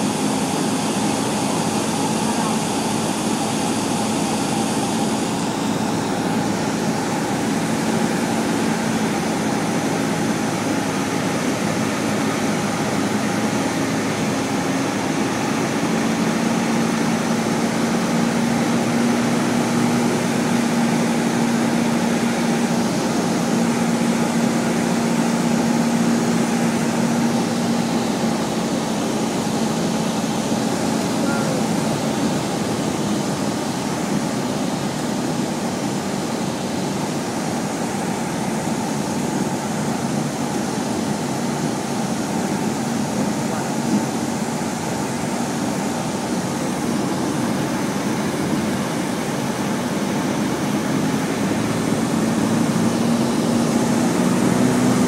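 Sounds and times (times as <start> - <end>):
propeller airplane engine droning: 0.0 - 55.0.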